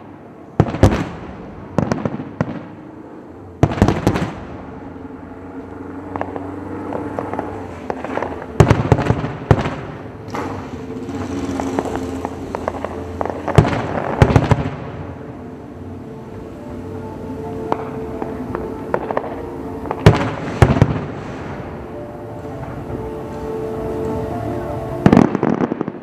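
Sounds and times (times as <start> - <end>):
rumble: 0.0 - 26.0
distant firework shells bursting: 6.1 - 15.1.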